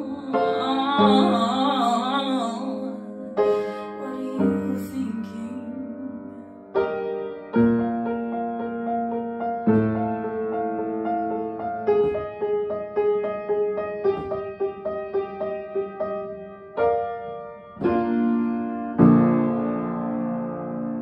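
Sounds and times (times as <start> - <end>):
woman singing with vibrato: 0.0 - 6.6
piano playing slow chords: 0.0 - 21.0.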